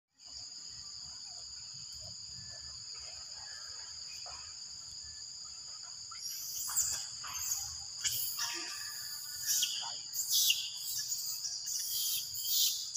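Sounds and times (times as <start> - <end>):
high-pitched insect drone: 3.9 - 12.9.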